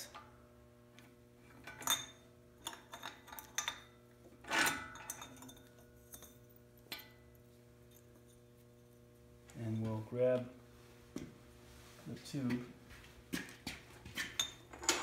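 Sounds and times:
faint steady hum: 0.0s - 15.0s
metal clinks and knocks: 1.6s - 10.1s, 14.2s - 15.0s.

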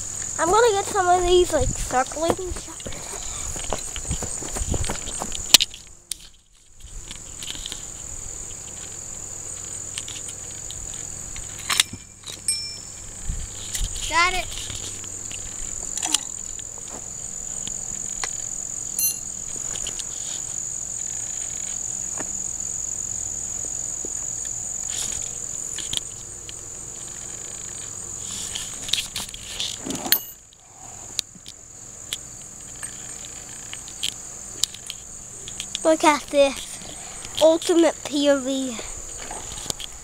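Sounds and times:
insects trilling: 0.0s - 40.0s.

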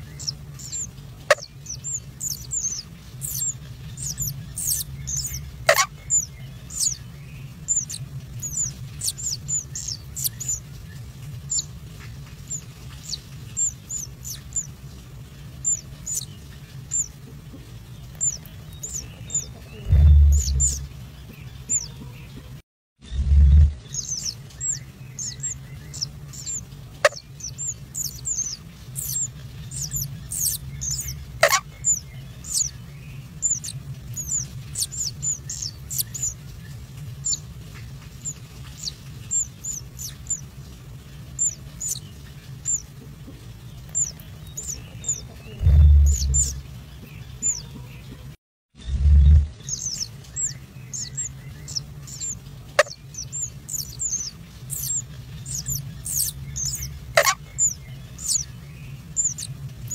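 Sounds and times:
low steady hum: 0.0s - 59.9s
nestling birds cheeping: 0.0s - 59.9s
low thump: 19.9s - 20.9s.

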